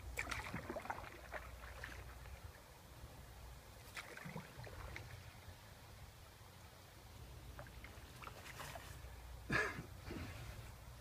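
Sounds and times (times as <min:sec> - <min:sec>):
light clicks and splashes: 0:00.0 - 0:02.6, 0:03.8 - 0:05.4, 0:07.5 - 0:09.1
paddle dipping and dripping: 0:00.0 - 0:02.8, 0:03.7 - 0:05.7, 0:07.4 - 0:09.3
low steady rumble: 0:00.0 - 0:11.0.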